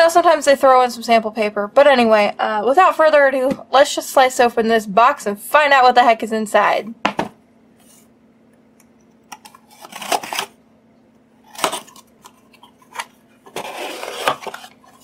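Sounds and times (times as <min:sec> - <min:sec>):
blade slicing packing tape: 0:09.4 - 0:10.6, 0:11.4 - 0:12.1.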